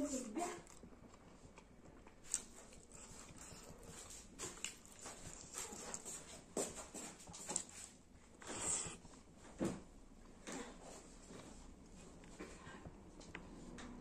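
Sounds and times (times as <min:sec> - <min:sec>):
chewing and lip-smacking: 0:00.1 - 0:06.4.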